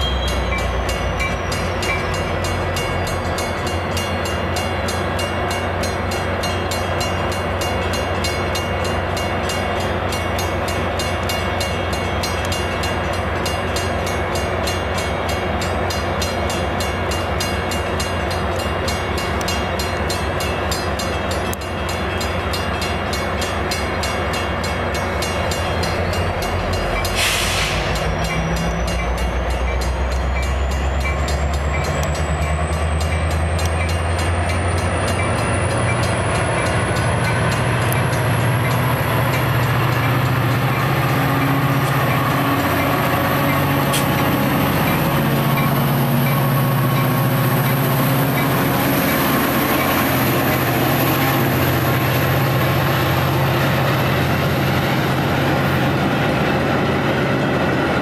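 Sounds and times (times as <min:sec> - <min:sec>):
diesel locomotive engine drone: 0:00.0 - 0:58.0
brief burst of sound: 0:27.2 - 0:28.0.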